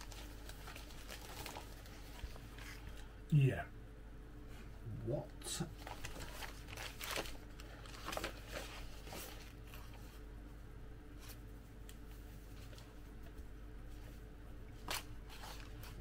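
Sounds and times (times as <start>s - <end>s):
thin plastic rustling and crackling: 0.0s - 3.0s, 5.8s - 10.2s, 14.8s - 16.0s.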